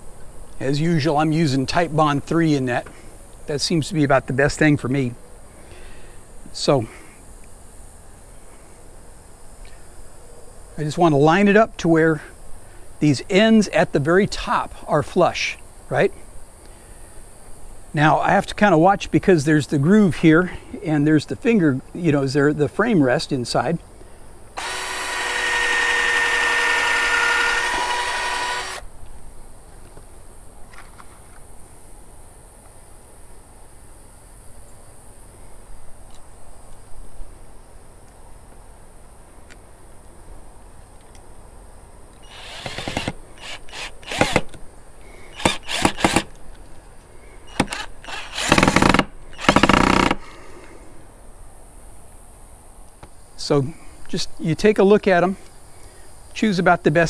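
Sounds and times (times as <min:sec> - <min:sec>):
cordless drill running: 0:24.6 - 0:28.9, 0:42.2 - 0:44.6, 0:45.3 - 0:46.3, 0:47.5 - 0:50.2.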